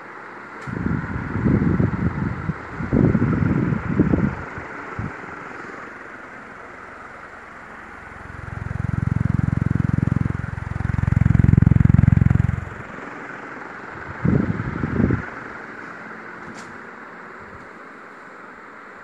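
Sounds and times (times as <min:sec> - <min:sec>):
ceiling fan whooshing: 0:00.0 - 0:19.0
wind buffeting microphone: 0:00.7 - 0:05.2, 0:14.0 - 0:15.3.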